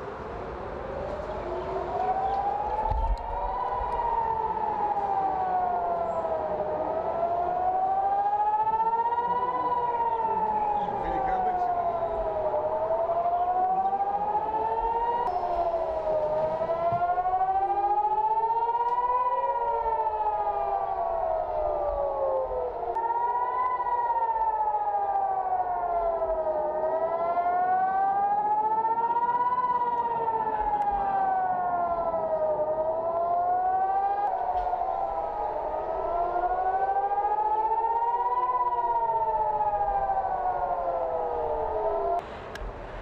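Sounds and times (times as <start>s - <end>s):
warning sirens wailing: 0.0s - 43.0s.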